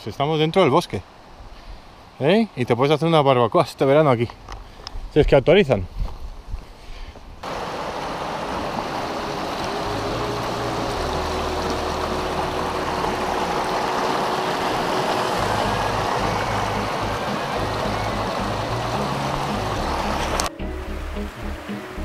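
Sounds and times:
river rushing over rocks: 7.4s - 22.0s.

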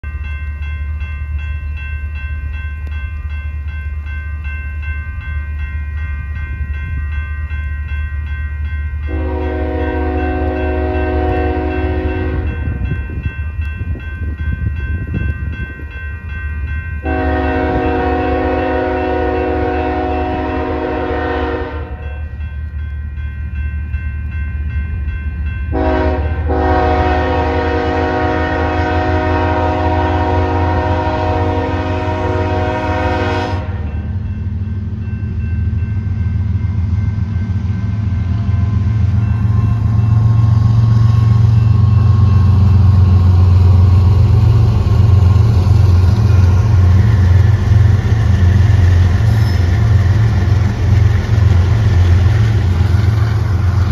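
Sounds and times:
diesel locomotive engines rumbling: 0.0s - 53.9s
train horn blasts: 9.0s - 13.0s, 17.0s - 22.2s, 25.7s - 34.1s.

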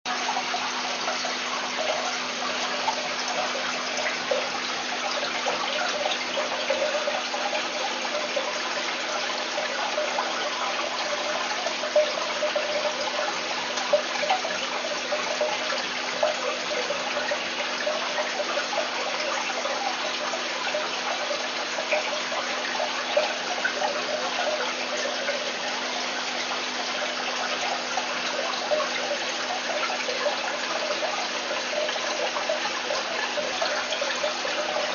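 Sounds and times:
aquarium water trickling: 0.1s - 34.9s.

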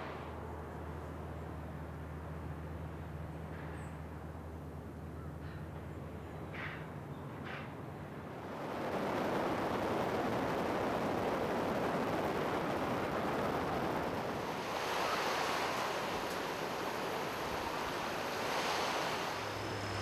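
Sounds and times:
sea waves washing on shore: 8.2s - 20.0s.

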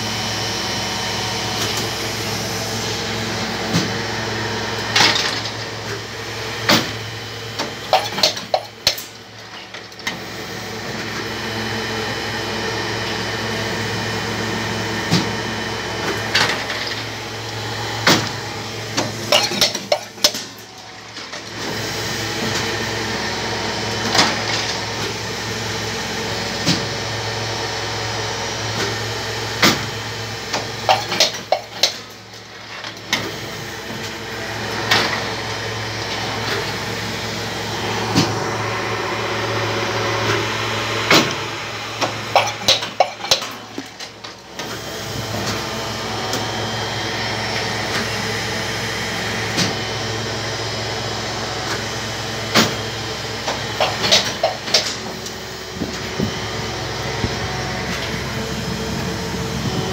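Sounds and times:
molding machine hum: 0.0s - 59.9s
machine clanks and knocks: 4.9s - 5.7s, 6.7s - 10.2s, 18.0s - 21.5s, 29.6s - 34.1s, 42.0s - 44.7s, 53.4s - 55.2s.

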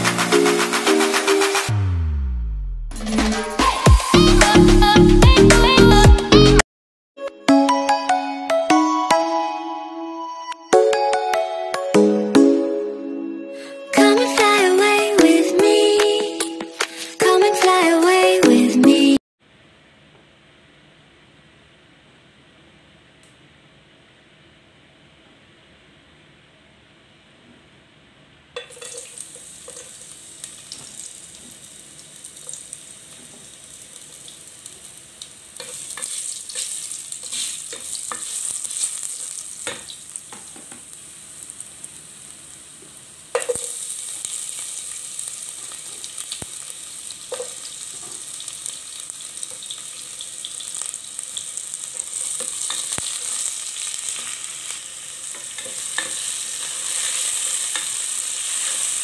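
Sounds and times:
food sizzling in hot oil: 28.6s - 59.0s.

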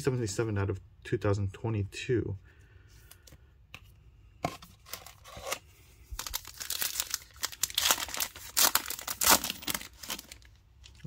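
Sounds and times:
foil wrapper crinkling and tearing: 4.8s - 11.0s.

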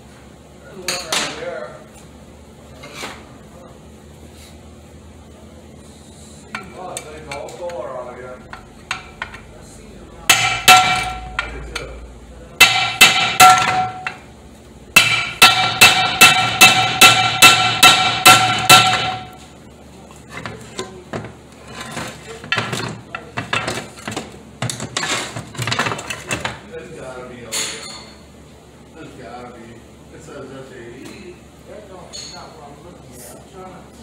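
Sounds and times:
hammer striking steel rod: 10.3s - 11.8s, 12.6s - 14.2s, 15.0s - 19.4s.

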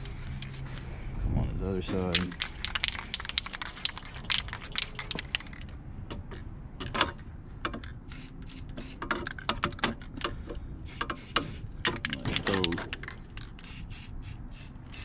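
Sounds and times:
spray can hissing: 2.1s - 5.1s, 8.1s - 9.0s, 10.9s - 11.7s, 13.4s - 15.0s.

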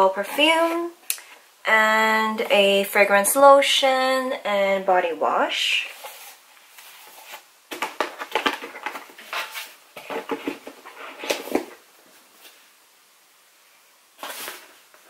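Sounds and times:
cardboard and bottles rustling: 5.9s - 12.7s, 14.2s - 15.0s.

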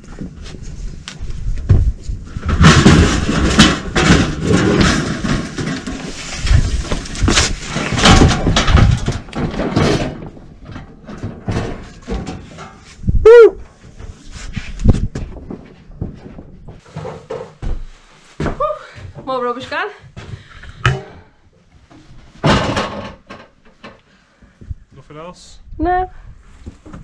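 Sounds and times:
tool chest scraping and clattering: 2.3s - 13.1s, 14.0s - 18.2s, 21.9s - 24.0s.

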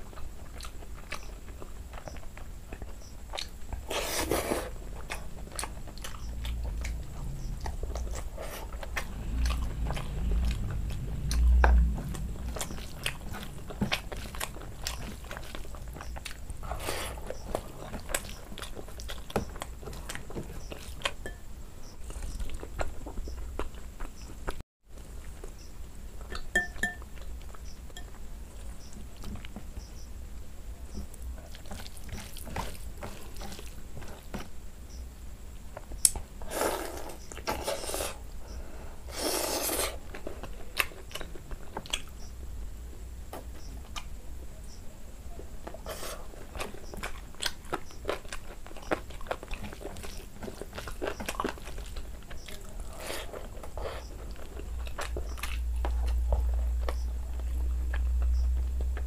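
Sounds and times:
chewing and wet mouth smacks: 0.1s - 3.9s, 4.8s - 21.2s, 40.1s - 42.2s, 45.6s - 59.0s
wet sucking sounds: 3.8s - 4.8s, 36.4s - 38.3s, 39.0s - 40.1s
spoon clinking against glass bowl: 26.3s - 27.1s
fingers squishing rice: 30.9s - 34.5s.

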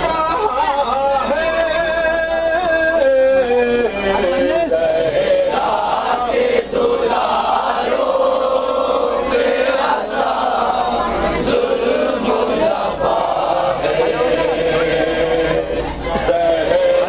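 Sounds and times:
man chanting a lament: 0.0s - 6.9s, 11.6s - 17.0s
men's voices chanting: 2.7s - 17.0s.

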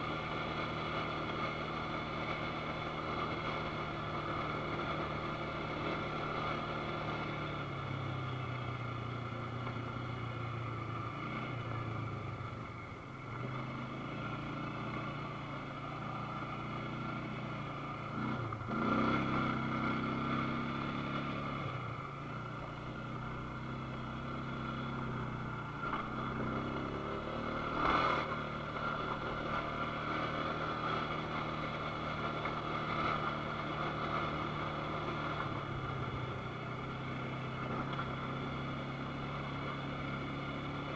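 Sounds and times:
atv engine running: 0.0s - 40.9s.

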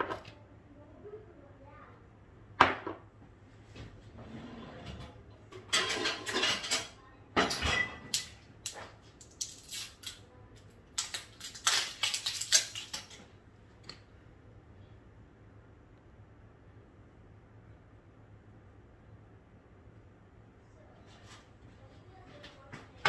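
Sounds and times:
kitchen items rattling and knocking: 4.2s - 9.9s, 11.0s - 13.4s.

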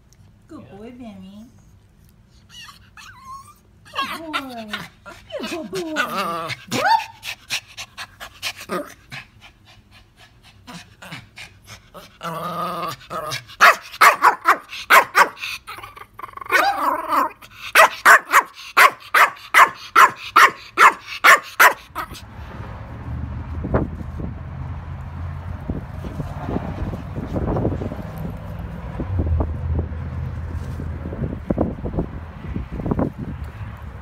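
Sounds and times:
small dog barking: 13.6s - 15.4s, 16.5s - 22.2s.

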